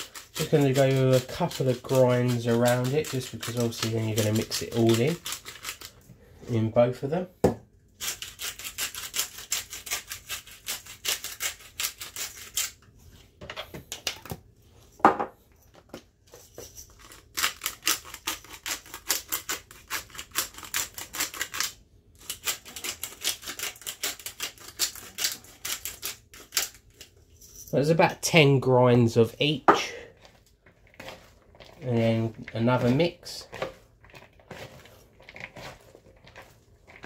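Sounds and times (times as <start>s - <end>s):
grinder mills grinding salt and pepper: 0.0s - 6.0s, 8.0s - 12.8s, 16.7s - 27.2s, 30.2s - 37.0s.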